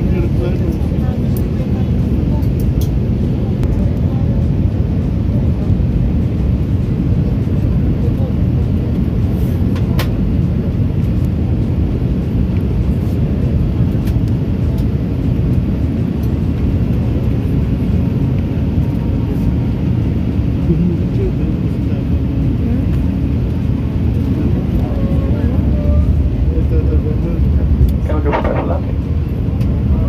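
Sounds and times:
airliner cabin engine rumble: 0.0 - 30.0.

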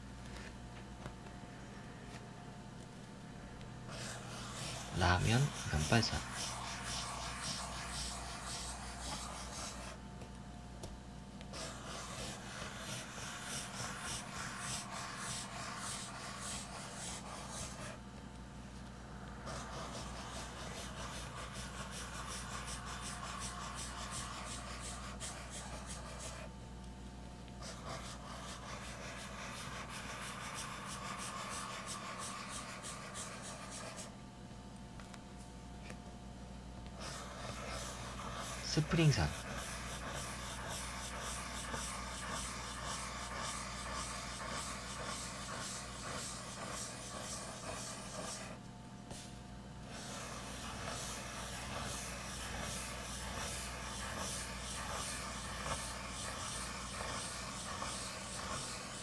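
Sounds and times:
pencil scratching on paper: 3.9 - 10.0, 11.5 - 18.0, 19.4 - 26.5, 27.6 - 34.1, 37.0 - 59.0.

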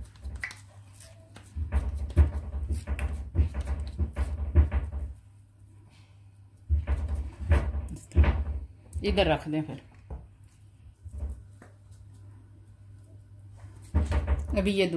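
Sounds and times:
wet hands patting potato patty: 0.0 - 5.2, 9.9 - 13.1.

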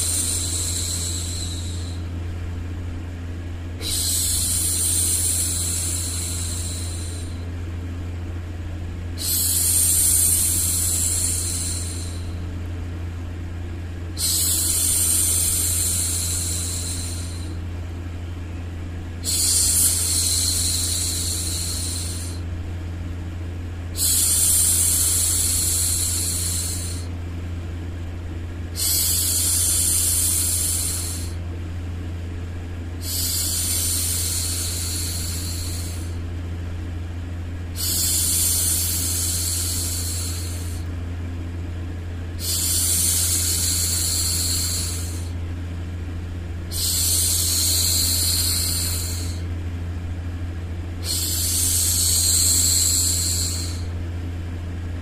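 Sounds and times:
low hum: 0.0 - 55.0
woman shushing: 3.8 - 7.4.

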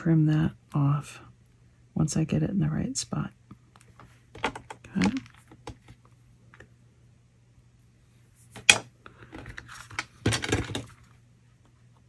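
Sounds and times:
faint steady low hum: 0.0 - 12.0
card rustling and sliding: 8.2 - 11.1.

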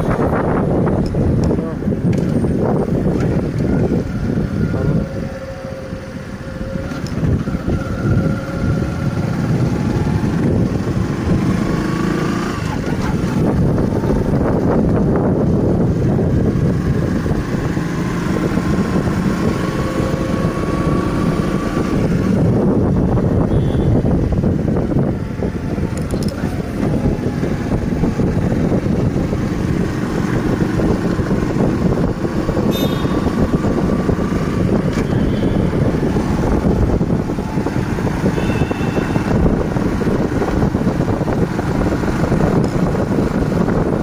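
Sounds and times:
vehicle engine and road noise: 0.0 - 44.0
wind: 0.0 - 44.0.

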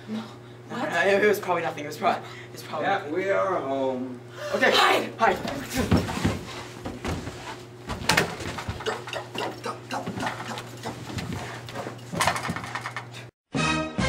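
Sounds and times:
knocks and scuffs: 5.3 - 12.7
music: 13.5 - 14.0.

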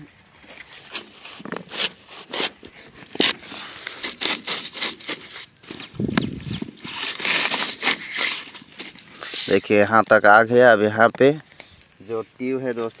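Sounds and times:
plastic hose scraping on metal pipe: 0.4 - 10.2.

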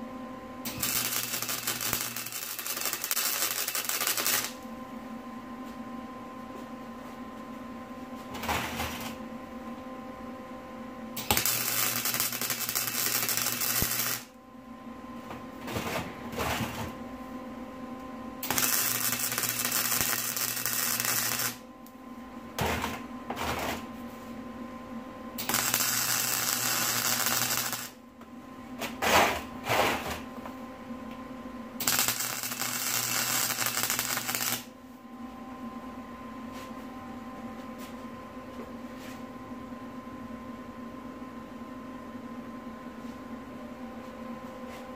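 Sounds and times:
arc welding: 0.6 - 4.6, 11.2 - 14.4, 18.4 - 21.7, 25.4 - 28.0, 31.8 - 34.7.

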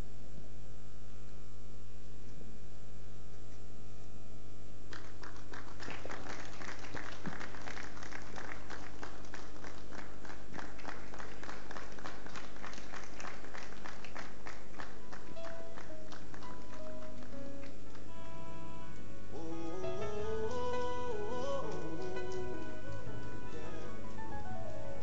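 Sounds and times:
rhythmic hand-clapping: 4.9 - 18.1, 20.4 - 25.0
low hum: 15.0 - 25.0
instrument holding notes: 17.4 - 25.0.

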